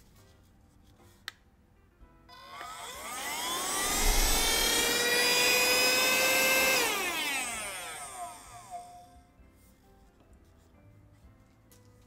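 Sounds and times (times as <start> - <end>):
handheld vacuum motor whining: 2.3 - 9.2.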